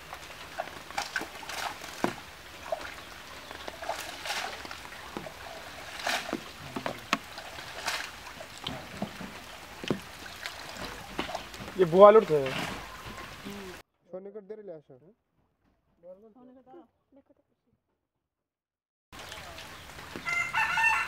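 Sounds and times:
water splashing: 0.0s - 13.8s, 19.2s - 21.0s
water trickling: 0.0s - 13.8s, 19.2s - 21.0s.

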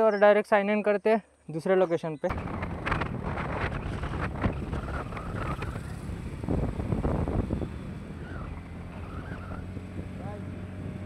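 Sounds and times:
motorcycle engine running: 2.3s - 11.0s
wind buffeting microphone: 2.3s - 11.0s.

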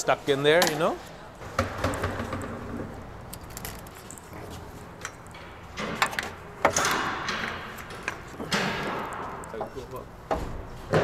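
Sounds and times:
low shop hum: 0.0s - 11.0s
metal parts clinking and knocking: 3.2s - 4.4s.

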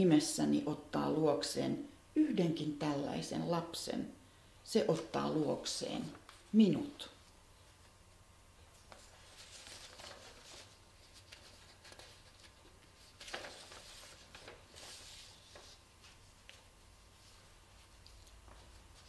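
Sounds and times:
paper sheets rustling: 8.6s - 19.0s.

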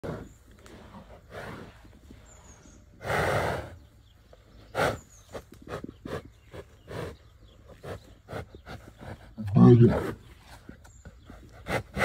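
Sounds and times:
bull snorting: 0.0s - 3.8s, 4.6s - 12.0s.

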